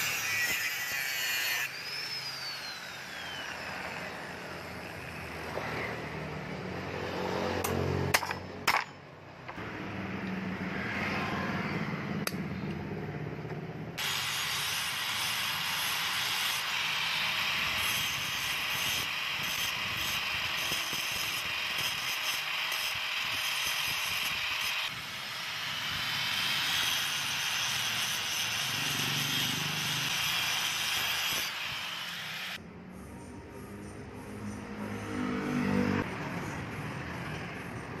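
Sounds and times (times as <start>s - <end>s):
angle grinder cutting metal: 0.0s - 6.4s, 14.0s - 32.6s.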